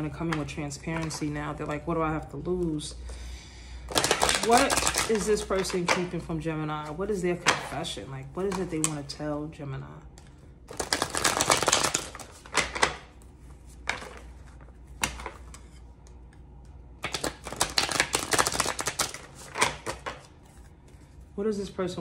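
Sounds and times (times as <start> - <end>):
cards being shuffled: 0.0 - 2.8, 3.9 - 7.8, 10.2 - 16.2, 17.0 - 21.1.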